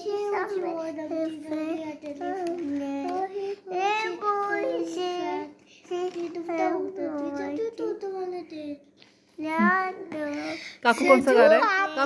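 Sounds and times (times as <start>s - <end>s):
child singing: 0.0s - 8.8s.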